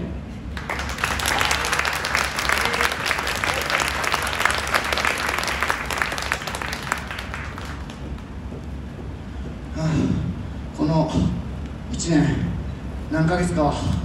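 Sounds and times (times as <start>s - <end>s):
audience applauding: 0.5s - 8.5s.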